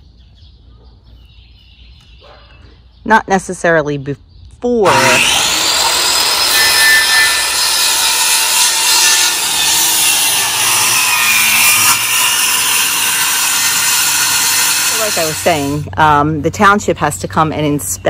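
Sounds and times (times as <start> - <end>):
circular saw cutting plywood: 4.8 - 15.9.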